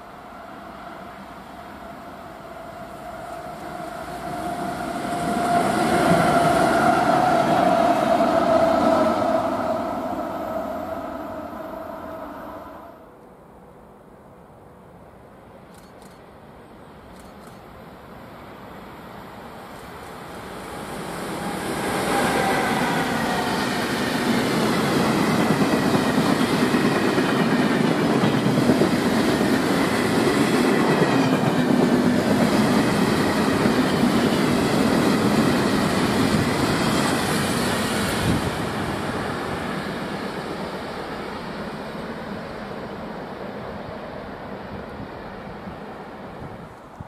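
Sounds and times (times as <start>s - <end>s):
freight train wheels on rails: 0.0s - 12.6s, 15.6s - 47.0s.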